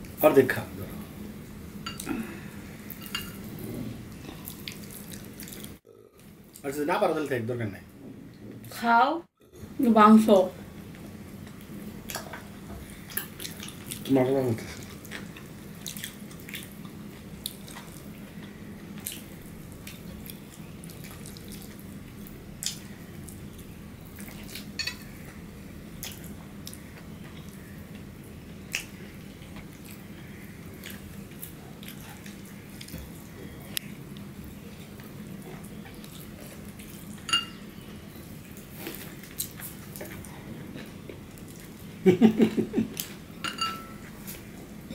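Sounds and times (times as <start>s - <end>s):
chewing: 2.9s - 6.6s, 11.3s - 14.1s, 14.8s - 23.4s, 28.7s - 37.3s.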